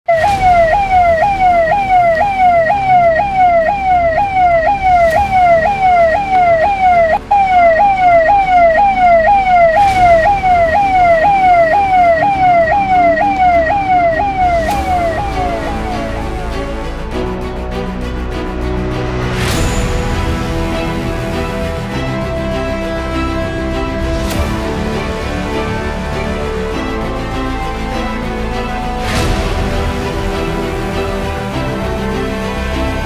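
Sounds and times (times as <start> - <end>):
police siren yelping: 0.1 - 17.4.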